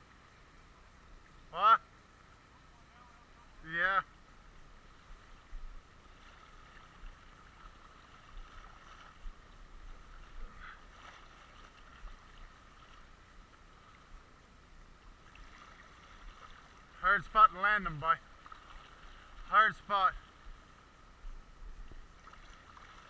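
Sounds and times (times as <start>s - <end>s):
river current washing: 0.0s - 23.0s
short water splashes: 4.8s - 14.1s, 15.1s - 20.9s, 21.8s - 23.0s.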